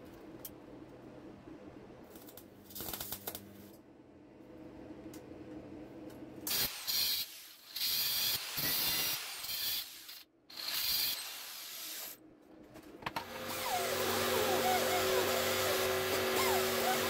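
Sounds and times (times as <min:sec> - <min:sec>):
rotary sander running: 0:13.3 - 0:17.0.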